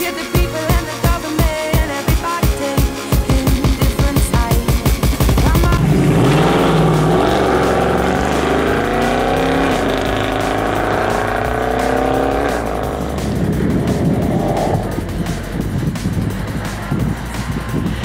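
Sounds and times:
song with steady beat: 0:00.0 - 0:18.0
car engine accelerating hard: 0:04.8 - 0:18.0.

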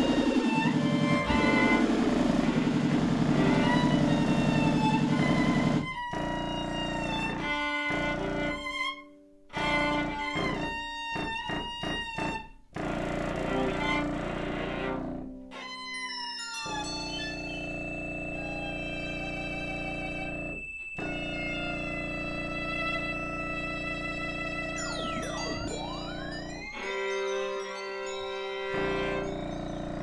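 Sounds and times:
dense low buzzing: 0:00.0 - 0:05.8
sustained low notes: 0:00.0 - 0:08.6, 0:21.0 - 0:27.0
high viola tones: 0:00.0 - 0:30.0.

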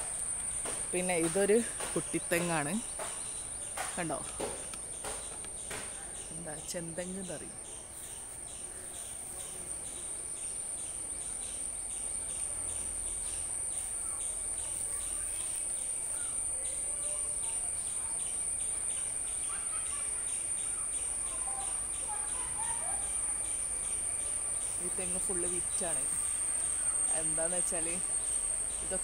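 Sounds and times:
insects droning and chirping: 0:00.0 - 0:29.0
faint bird chirps: 0:02.6 - 0:29.0.

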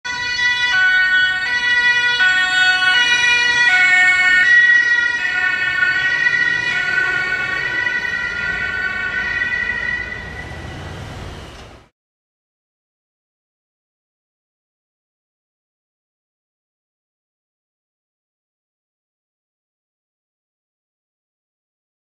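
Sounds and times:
two-tone emergency siren: 0:00.1 - 0:11.6.

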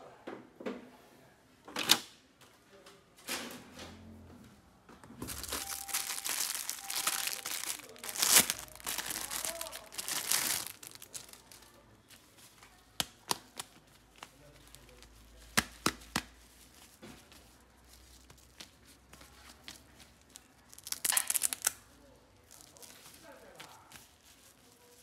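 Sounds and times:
plastic bag crinkling: 0:05.2 - 0:11.8, 0:20.2 - 0:25.0.

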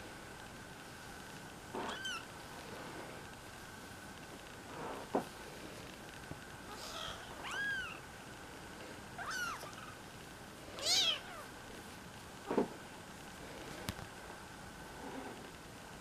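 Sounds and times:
kittens mewing: 0:01.8 - 0:02.3, 0:06.7 - 0:08.0, 0:09.2 - 0:10.0, 0:10.8 - 0:11.5.

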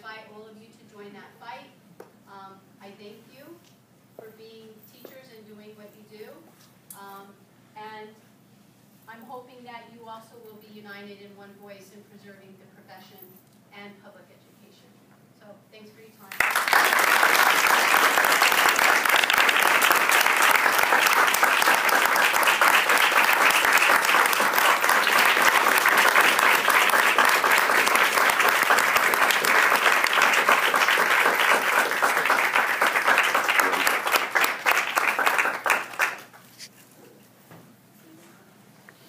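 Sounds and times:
audience applauding: 0:16.4 - 0:36.4.

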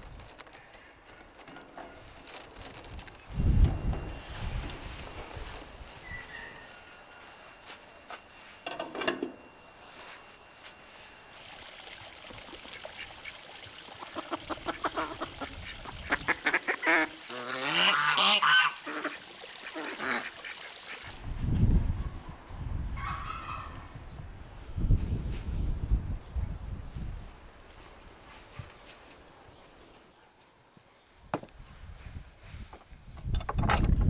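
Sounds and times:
ducks quacking: 0:12.7 - 0:21.1.

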